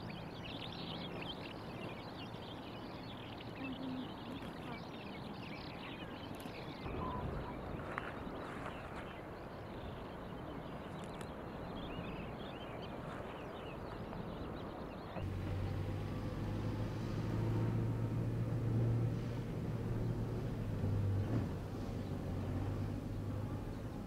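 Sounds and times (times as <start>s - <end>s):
birds chirping: 0.0s - 24.0s
car engine humming: 15.2s - 24.0s.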